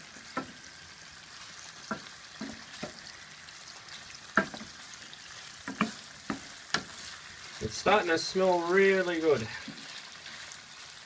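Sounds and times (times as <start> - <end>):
food sizzling in frying pan: 0.0 - 11.0
wooden spatula knocking on pan: 0.2 - 0.6, 1.8 - 3.1, 4.3 - 4.8, 5.6 - 7.0.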